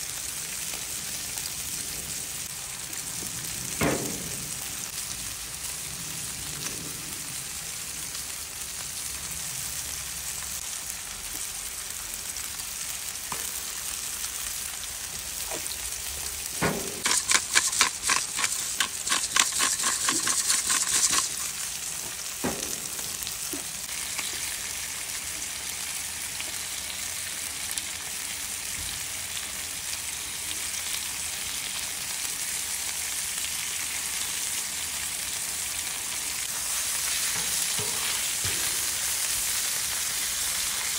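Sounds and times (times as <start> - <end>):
food sizzling on griddle: 0.0 - 40.9
seasoning shaker rattling: 16.7 - 23.8.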